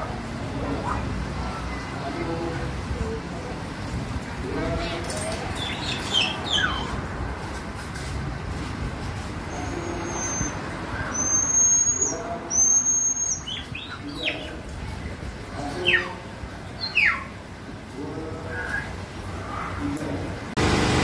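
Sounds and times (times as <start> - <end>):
marmoset high whistles: 10.0 - 13.6.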